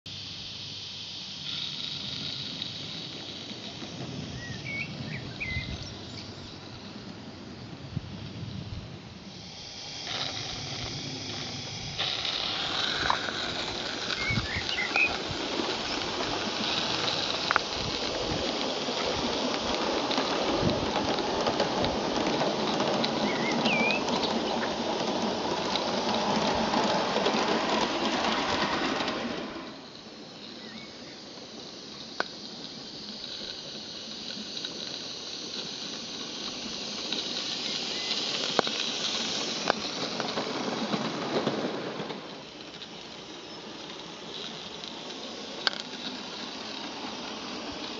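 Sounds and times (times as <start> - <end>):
model steam locomotive running: 0.1 - 47.9
steady rushing noise: 0.1 - 47.9
bird chirps: 4.4 - 6.6, 14.2 - 15.2, 23.2 - 24.2.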